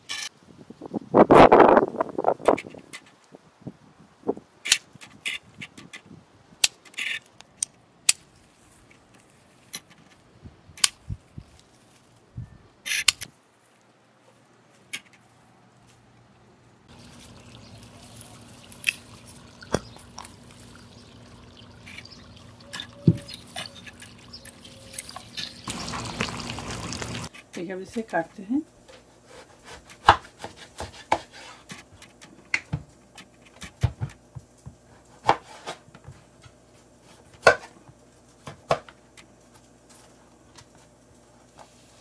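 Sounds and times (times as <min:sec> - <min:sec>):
leaves rustling: 0:11.0 - 0:12.4, 0:13.3 - 0:27.4
faint steady hum: 0:13.8 - 0:30.0.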